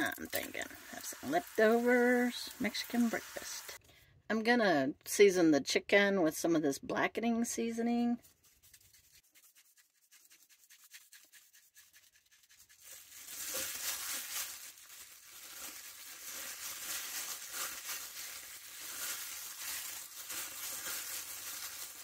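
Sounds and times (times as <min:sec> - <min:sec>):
plastic bag crinkling: 0:00.0 - 0:03.8, 0:11.1 - 0:22.0.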